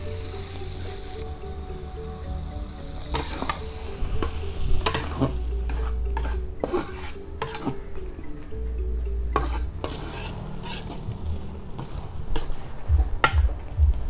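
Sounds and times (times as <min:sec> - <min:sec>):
light sizzle: 0:00.0 - 0:12.9
metal spatula scraping a wok: 0:02.8 - 0:07.9, 0:09.3 - 0:12.8.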